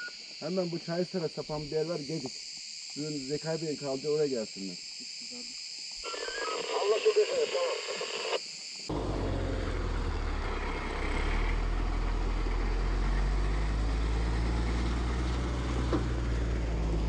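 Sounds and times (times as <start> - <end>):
truck engine humming: 8.9 - 17.0.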